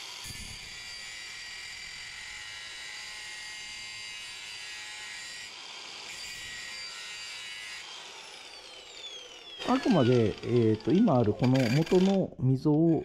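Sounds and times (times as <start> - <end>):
angle grinder grinding metal: 0.0 - 13.0.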